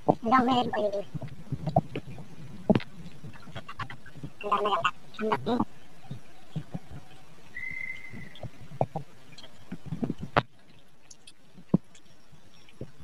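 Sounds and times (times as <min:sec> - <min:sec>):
short high whistle: 0:07.6 - 0:08.4.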